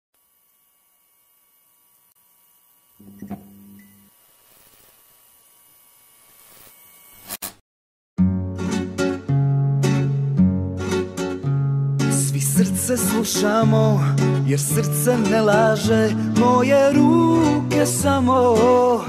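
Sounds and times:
low buzzing tone with click: 0.2s - 7.5s
electric buzz and hum: 0.2s - 7.6s
acoustic guitar music: 8.2s - 19.0s.

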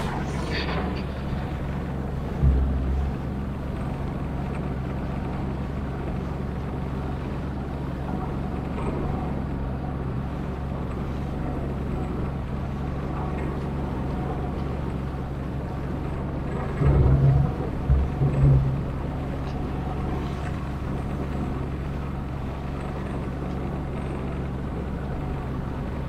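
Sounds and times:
rushing noise: 0.0s - 4.5s
boat motor hum: 0.0s - 26.0s.

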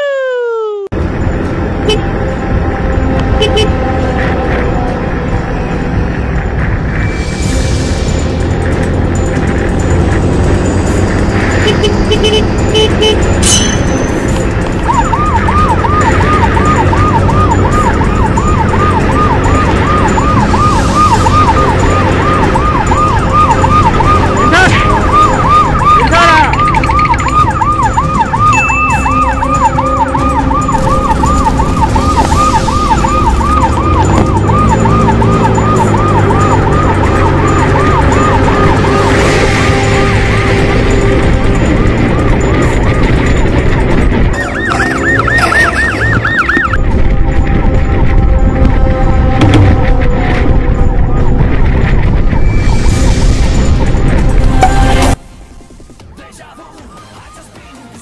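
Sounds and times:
motorcycle engine and wind rumble: 1.0s - 56.2s
police siren warbling: 11.6s - 53.8s, 56.3s - 58.0s.

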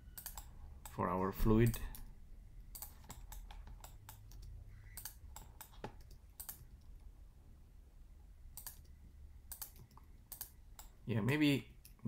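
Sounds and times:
faint low hum: 0.0s - 12.0s
keyboard and mouse clicking: 0.2s - 1.0s, 2.7s - 7.1s, 8.6s - 11.0s.

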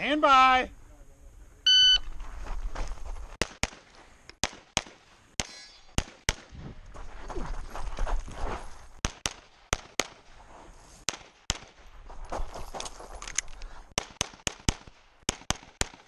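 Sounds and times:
movement noise: 2.0s - 4.4s, 5.1s - 9.0s
pistol shots: 3.4s - 6.6s, 9.0s - 10.2s, 11.1s - 11.8s, 14.0s - 16.0s.

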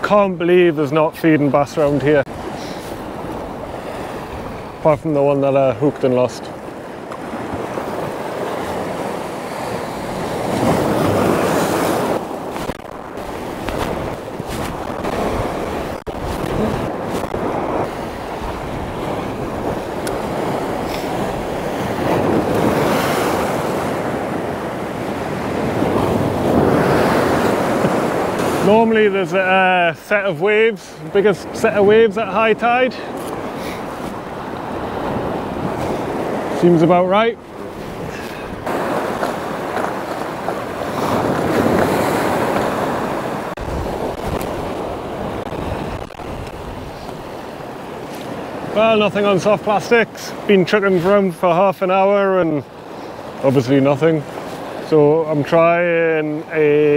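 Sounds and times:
sea waves breaking on shore: 0.0s - 56.9s
wind buffeting microphone: 1.5s - 49.3s.

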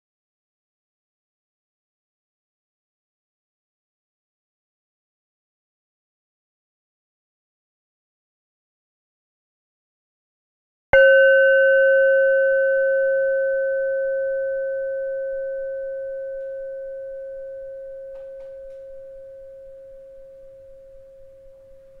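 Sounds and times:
struck bell tone ringing: 11.0s - 22.0s.

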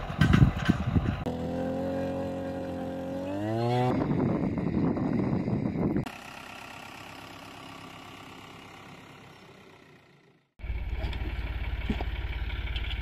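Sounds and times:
tractor engine running: 0.0s - 3.2s, 4.0s - 13.0s
tractor engine idling: 5.6s - 13.0s.

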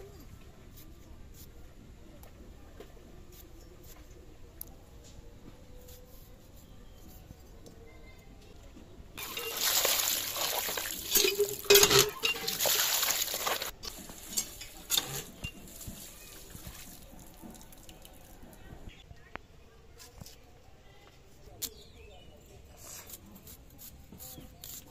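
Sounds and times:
water pouring and splashing: 9.2s - 18.6s.

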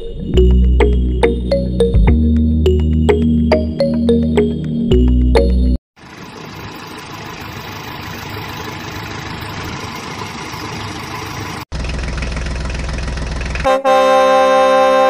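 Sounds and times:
pulsing low rumble: 0.0s - 3.2s
steady pitched tone: 0.0s - 5.8s
deep engine idling: 0.4s - 13.7s
engine running: 0.4s - 13.8s.

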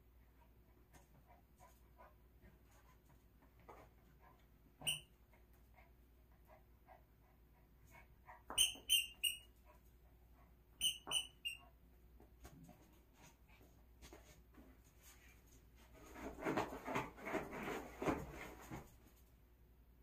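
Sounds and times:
squeaky dog toy squeaks: 4.8s - 5.1s, 8.5s - 9.5s, 10.8s - 11.7s.

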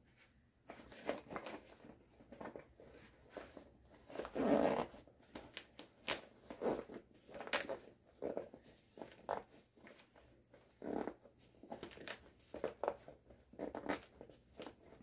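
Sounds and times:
zippers being pulled: 4.1s - 5.0s, 6.0s - 9.4s, 10.7s - 12.8s.

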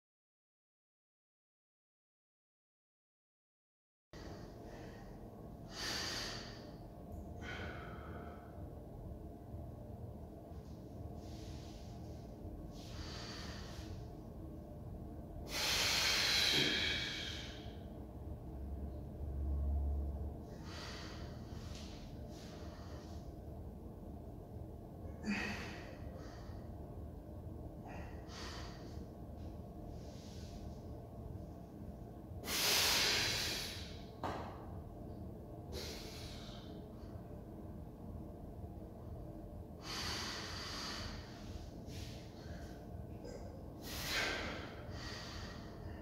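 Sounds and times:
man breathing hard: 4.2s - 8.8s, 11.2s - 14.3s, 15.4s - 18.0s, 20.4s - 23.6s, 25.1s - 27.1s, 27.8s - 30.9s, 32.4s - 34.4s, 35.7s - 37.3s, 39.7s - 46.0s
low rumble: 4.2s - 46.0s.

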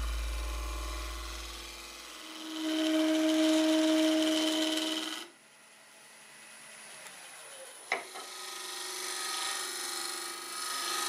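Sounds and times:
wood lathe motor hum: 0.0s - 11.0s
gouge cutting wood: 2.4s - 5.3s, 8.0s - 11.0s.

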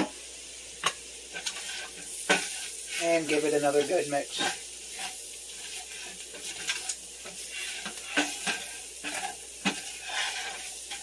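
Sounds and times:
vegetables sizzling in a pot: 0.0s - 11.0s
utensil scraping and knocking pot: 0.8s - 11.0s.

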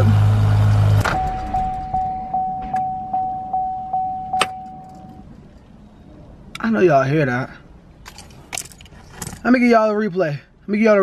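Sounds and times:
car warning chime dinging: 1.0s - 5.3s.

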